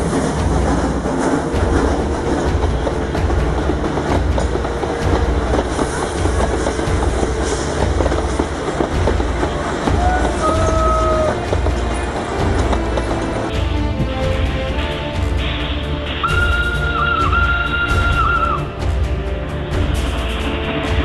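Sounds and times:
wheels clicking over rail joints: 0.0 - 13.5
railway coaches rumbling past: 0.0 - 21.0.

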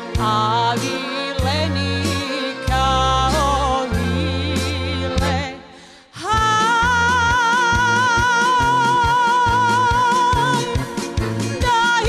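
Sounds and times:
accordion: 0.0 - 12.0
keyboard: 0.0 - 12.0
violin: 0.0 - 12.0
woman singing with vibrato: 0.0 - 12.0
acoustic guitars: 6.4 - 12.0.

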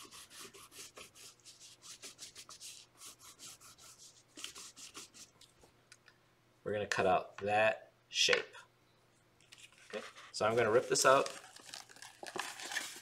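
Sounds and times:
crayon rubbing on paper: 0.0 - 5.3.

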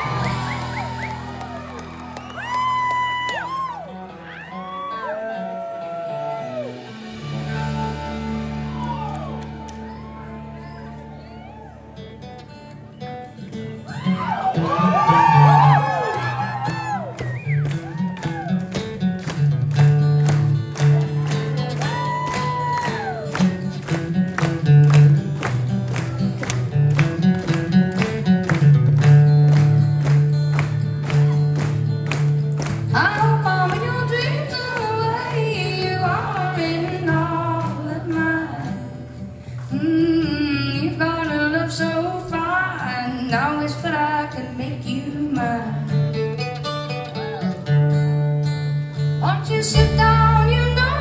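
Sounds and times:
acoustic guitar strumming: 5.3 - 51.0
woman singing: 32.9 - 46.2, 49.2 - 51.0.

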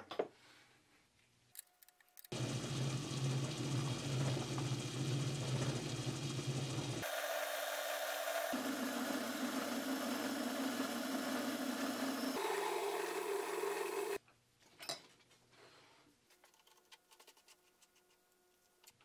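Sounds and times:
metal lathe running: 2.4 - 14.2
drill boring into metal: 7.0 - 14.2.

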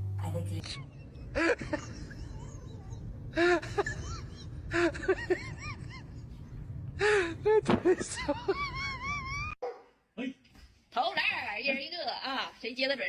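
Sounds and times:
steady low rumble: 0.0 - 9.6
person laughing: 0.7 - 6.4, 7.0 - 9.6.

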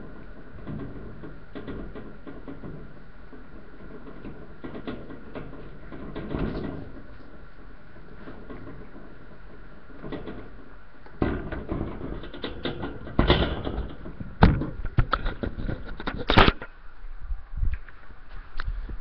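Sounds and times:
sharp knocks: 10.0 - 16.7.

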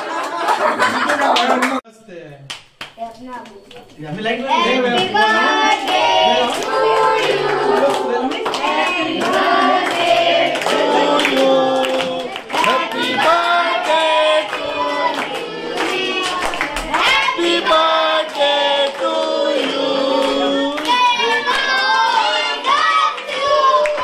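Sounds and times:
hands clapping: 0.0 - 1.8, 2.4 - 4.0, 5.9 - 24.0
group singing over music: 5.0 - 24.0.

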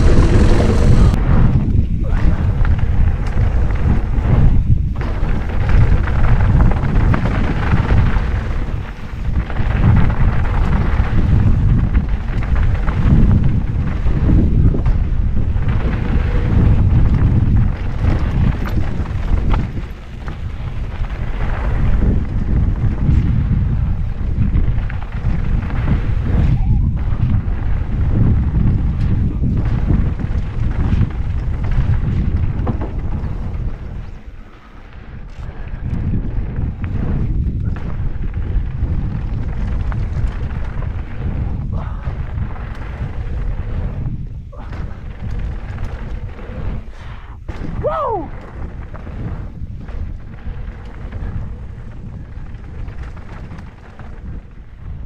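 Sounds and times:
tyres rolling over gravel: 0.0 - 1.3, 36.0 - 55.0
bike rattling: 0.0 - 55.0
tyres on loose gravel: 0.0 - 55.0
wind buffeting microphone: 0.0 - 55.0.

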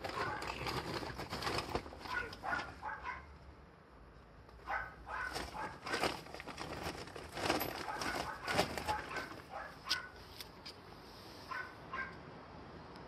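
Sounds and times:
dog crying: 2.0 - 3.3.

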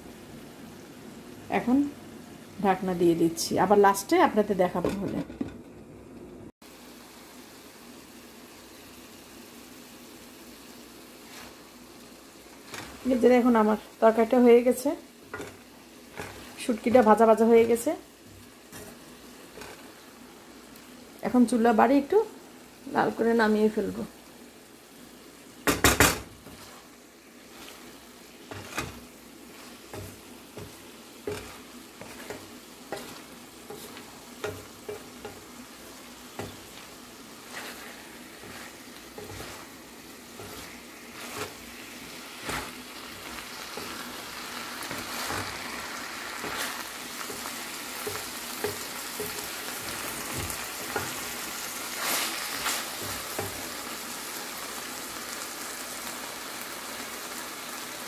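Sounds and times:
frying sizzle: 0.0 - 58.0
wooden spatula scraping metal pan: 12.6 - 13.7, 14.7 - 19.9, 25.7 - 44.2, 44.8 - 45.8, 46.4 - 53.8
spatula knocking against pan: 25.6 - 26.3.

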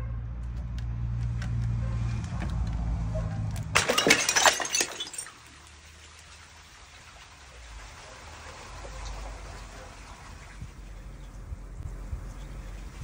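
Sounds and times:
glass bottle smashing: 3.7 - 5.5
glass bottle rolling on concrete: 3.8 - 5.5.

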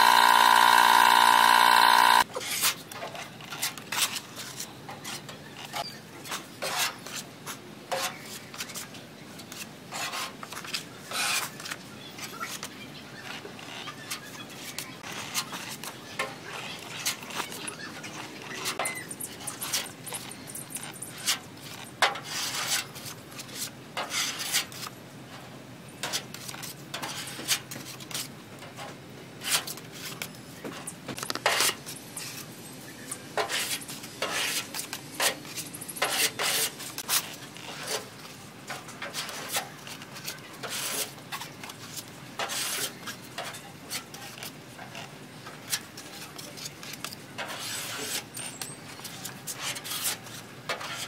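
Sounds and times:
spreader scraping body filler: 0.0 - 2.7.

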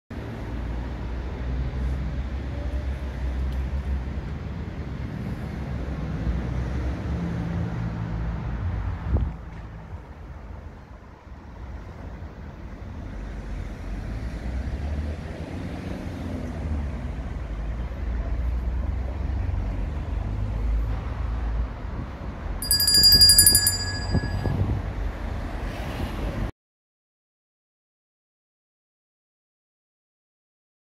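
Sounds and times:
motor vehicle rumble: 21.8 - 25.3.

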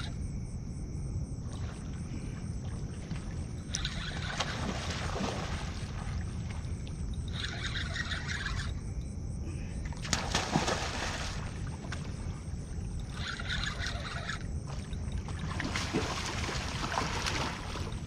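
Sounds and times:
wind and water rumble: 0.0 - 18.0
fishing reel whirring: 3.6 - 4.7, 7.1 - 9.0, 13.0 - 15.0.

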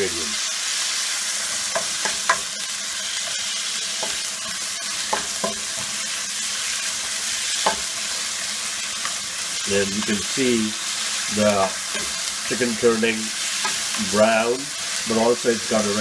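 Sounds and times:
chicken sizzling in a frying pan: 0.0 - 16.0
spatula scraping a pan: 1.4 - 8.2.

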